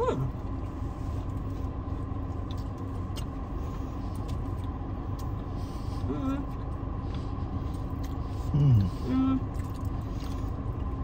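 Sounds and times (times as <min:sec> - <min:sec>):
car engine idling: 0:00.0 - 0:11.0
chewing crunchy cookie: 0:00.3 - 0:11.0.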